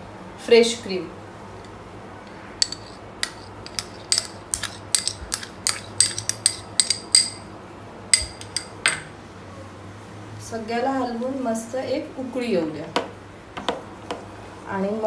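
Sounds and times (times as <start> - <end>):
spoon clinking on metal cookware: 2.6 - 7.4, 8.1 - 9.1.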